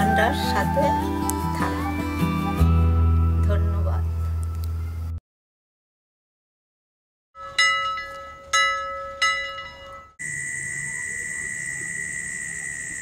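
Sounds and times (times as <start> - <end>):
bell-like chime: 7.4 - 10.2
high-pitched drone: 10.2 - 13.0.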